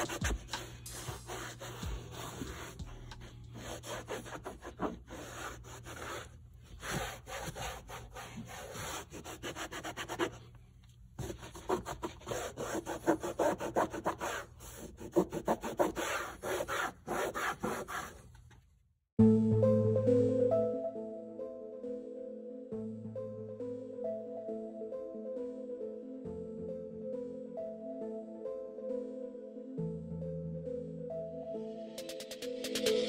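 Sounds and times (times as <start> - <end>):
towel scrubbing plastic: 0.0 - 10.5.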